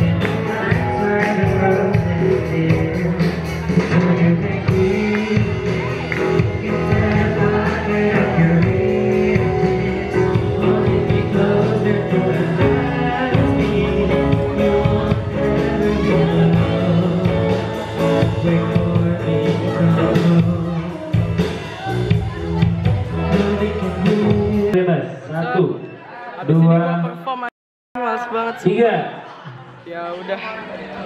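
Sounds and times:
drum kit: 0.0s - 24.8s
electric guitar: 0.0s - 24.8s
person singing into microphone: 0.0s - 24.8s.

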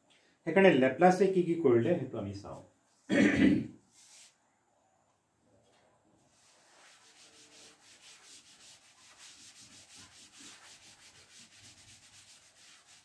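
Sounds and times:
cloth wiping blackboard: 3.9s - 4.4s, 6.3s - 13.0s.

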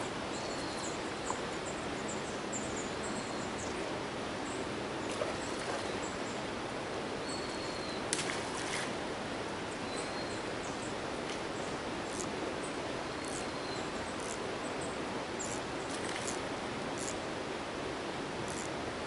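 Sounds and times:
small birds chirping: 0.3s - 3.8s, 13.1s - 16.4s.

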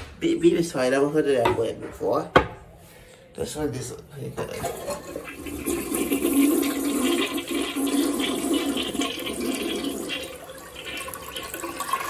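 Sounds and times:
toilet flushing: 4.4s - 12.0s.

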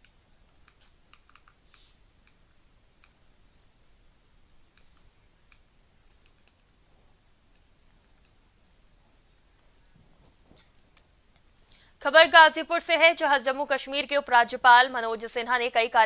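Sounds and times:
faint sharp clicks: 4.7s - 6.8s.

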